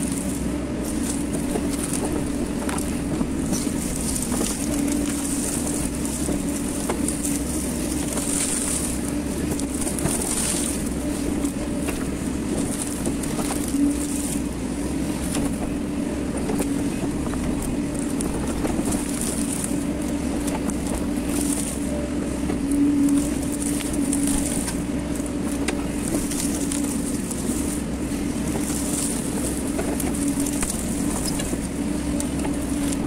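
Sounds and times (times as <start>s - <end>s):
excavator engine drone: 0.0s - 33.0s
clicks and crackles: 22.5s - 27.8s, 28.4s - 33.0s.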